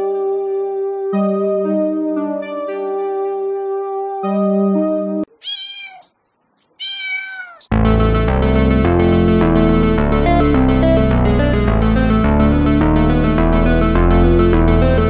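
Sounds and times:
sustained keyboard chords: 0.0s - 5.3s, 7.7s - 15.0s
cat meowing: 5.3s - 6.1s, 6.8s - 7.7s
loud music with steady beat: 7.7s - 15.0s.

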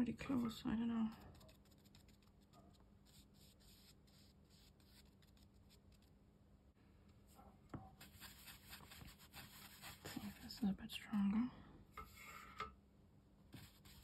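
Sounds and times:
low steady hum: 0.0s - 14.0s
brush scratching on paper: 0.3s - 6.1s, 7.9s - 10.8s, 13.5s - 14.0s.

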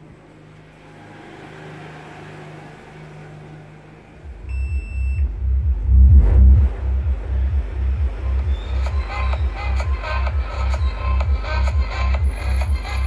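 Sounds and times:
faint low hum: 3.4s - 13.0s
rhythmic bass pulses: 4.2s - 13.0s
short high beep: 4.5s - 5.2s.

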